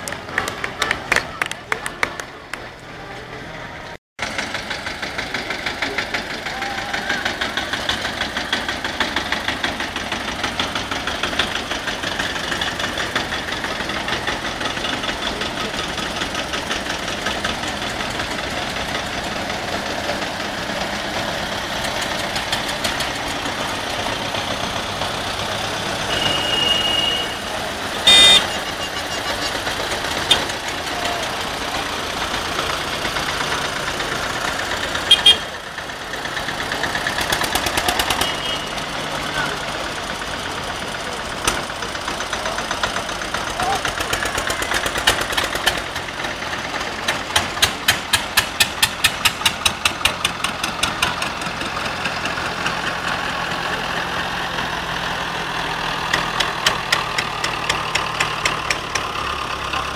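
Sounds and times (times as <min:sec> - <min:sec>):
old tractor engines puttering: 0:00.0 - 0:59.9
short loud tone: 0:26.1 - 0:27.4, 0:28.1 - 0:29.4.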